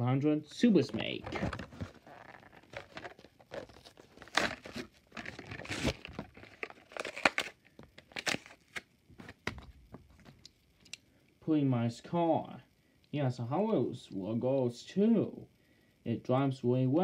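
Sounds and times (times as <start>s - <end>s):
plastic crinkling: 0.9s - 10.5s
cardboard tearing: 1.3s - 9.5s.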